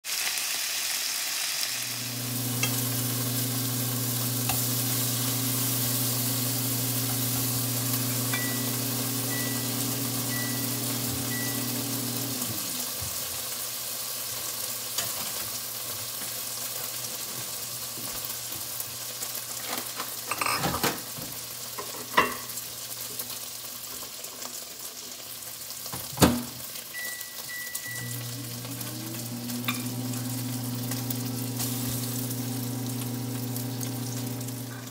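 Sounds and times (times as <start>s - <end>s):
bacon sizzling in a frying pan: 0.0s - 34.9s
cooktop electric hum: 0.1s - 34.9s
short electronic beeps: 27.0s - 28.2s.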